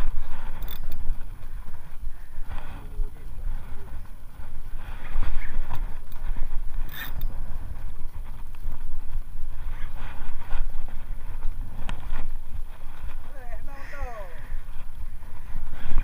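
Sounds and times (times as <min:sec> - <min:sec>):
wind and boat rumble: 0:00.0 - 0:16.0
fishing reel clicking: 0:00.5 - 0:01.1, 0:06.8 - 0:07.4.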